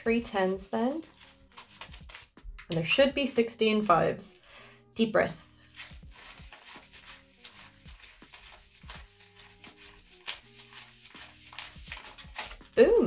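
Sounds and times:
soft background music: 0:00.0 - 0:13.0
banknotes flicked by hand: 0:01.2 - 0:02.7, 0:05.8 - 0:12.7.

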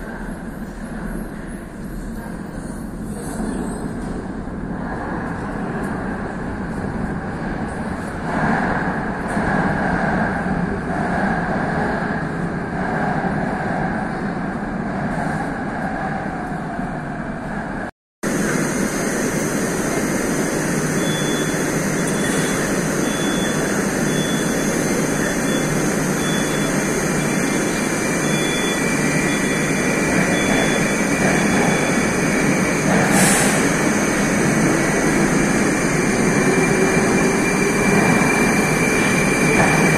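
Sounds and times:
train rumbling into platform: 0:00.0 - 0:39.9
station noise: 0:18.2 - 0:39.9.

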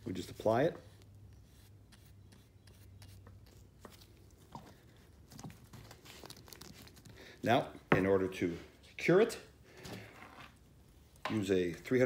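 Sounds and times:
brush on clay: 0:00.0 - 0:07.0.

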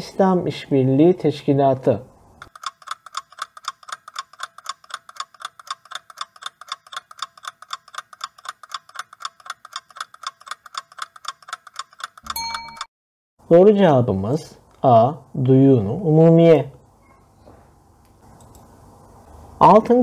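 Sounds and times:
rapid clock ticks: 0:02.4 - 0:12.9.

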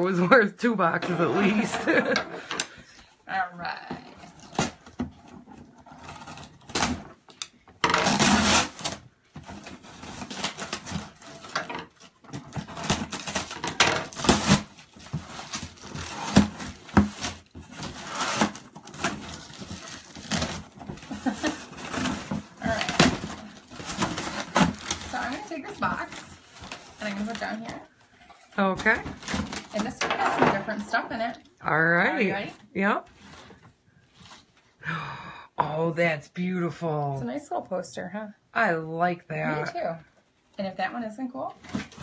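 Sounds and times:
scissors cutting cardboard box: 0:08.0 - 0:27.6
packing tape crinkling: 0:08.0 - 0:27.8.

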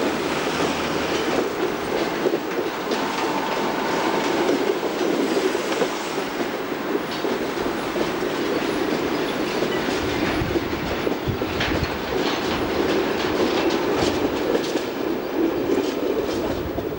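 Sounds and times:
train wheels clacking on rails: 0:00.0 - 0:16.9.

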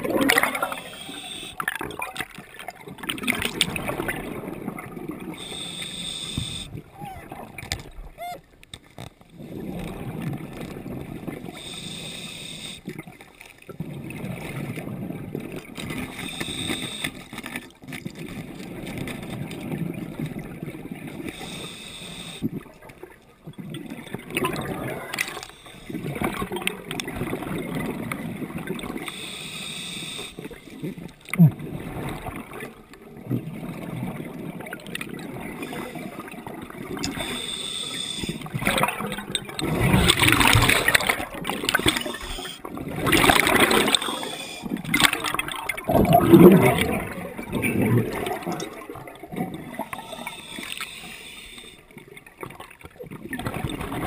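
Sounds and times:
exhaled bubbles rushing: 0:00.0 - 0:05.5, 0:22.5 - 0:29.0, 0:38.4 - 0:50.4, 0:52.4 - 0:54.0
scuba regulator inhale hiss: 0:00.6 - 0:01.6, 0:05.4 - 0:06.8, 0:11.6 - 0:12.9, 0:16.1 - 0:17.3, 0:21.3 - 0:22.5, 0:25.3 - 0:26.0, 0:29.0 - 0:30.8, 0:37.1 - 0:38.5, 0:41.9 - 0:42.7, 0:43.8 - 0:44.8, 0:49.8 - 0:51.9.

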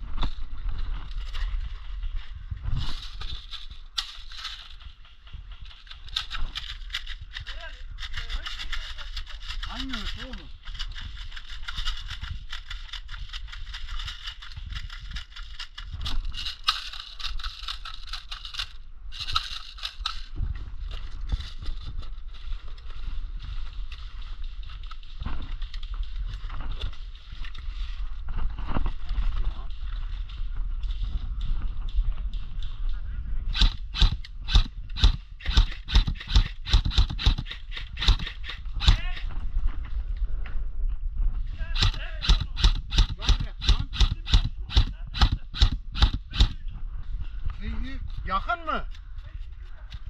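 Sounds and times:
wind rumble on microphone: 0:00.0 - 0:16.7, 0:20.0 - 0:50.0
airsoft rifle shots: 0:33.5 - 0:39.3, 0:41.7 - 0:46.6
rapid plastic clicking: 0:33.6 - 0:39.3, 0:41.8 - 0:46.6.

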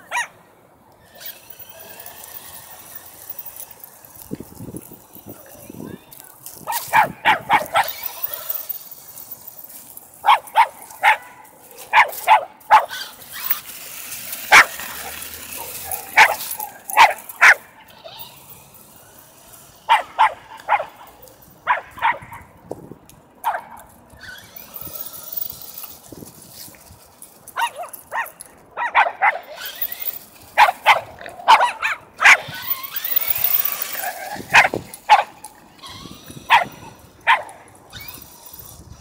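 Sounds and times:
dogs barking: 0:06.7 - 0:08.1, 0:10.2 - 0:13.1, 0:14.5 - 0:17.7, 0:19.9 - 0:22.4, 0:27.6 - 0:29.5, 0:30.6 - 0:32.5, 0:34.5 - 0:35.4, 0:36.5 - 0:37.6.

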